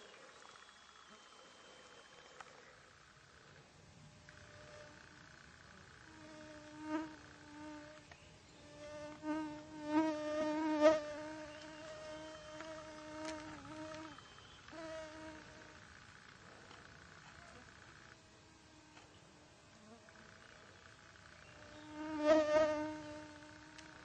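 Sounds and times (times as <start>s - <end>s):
flying insect buzzing: 4.2s - 19.1s, 19.7s - 24.0s.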